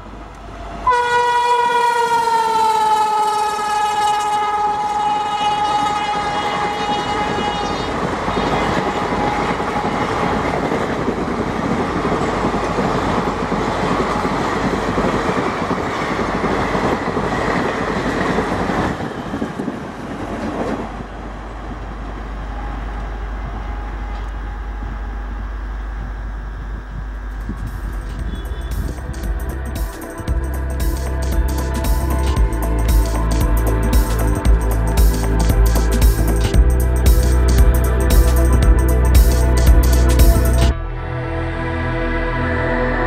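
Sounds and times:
low steady train rumble: 0.0s - 43.0s
locomotive horn: 0.8s - 10.6s, 22.3s - 26.6s, 27.3s - 30.1s.

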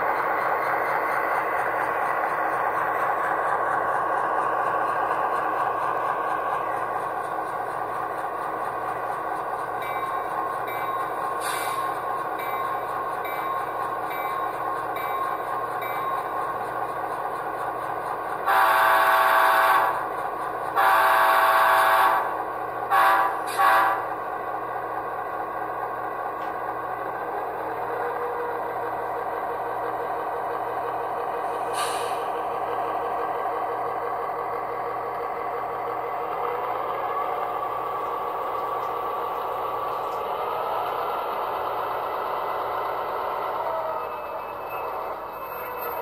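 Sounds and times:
simulated diesel engine drone: 0.0s - 46.0s
train horn blasts: 18.4s - 20.0s, 20.8s - 24.2s.

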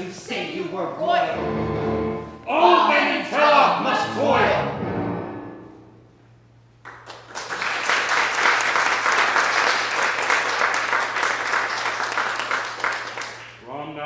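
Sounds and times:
audience applause: 6.9s - 13.6s.

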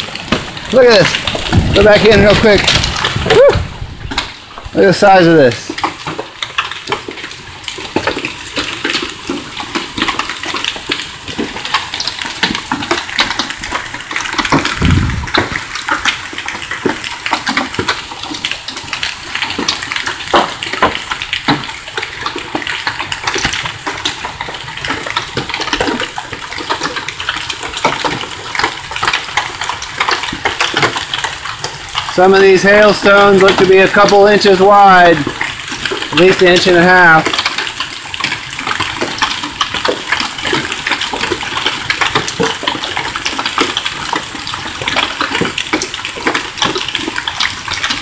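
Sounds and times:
hailstones hitting vehicles: 0.0s - 48.0s
rain falling: 0.0s - 48.0s.

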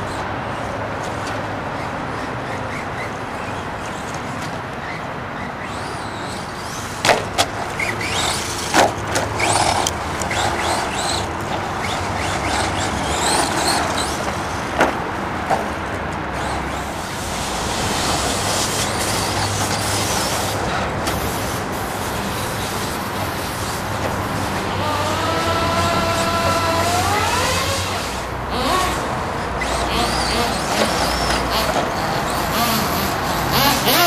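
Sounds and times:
tyre and chassis noise: 0.0s - 34.0s
electric motor whining: 7.6s - 14.7s, 16.3s - 34.0s.

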